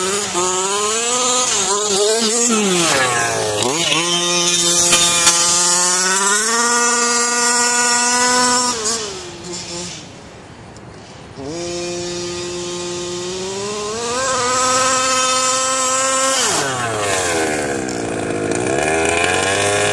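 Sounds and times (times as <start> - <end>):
two-stroke engine revving: 0.0 - 10.2, 11.2 - 19.9.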